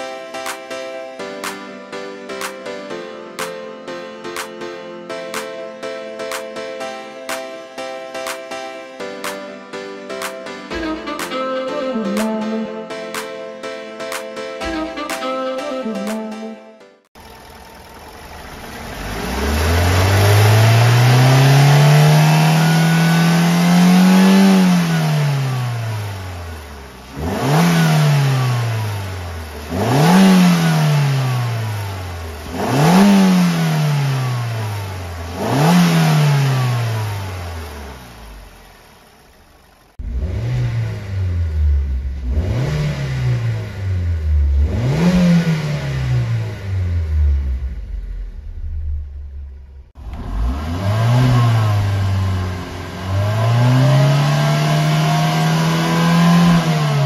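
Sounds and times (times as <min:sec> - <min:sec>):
car engine revving: 0:17.2 - 0:57.0.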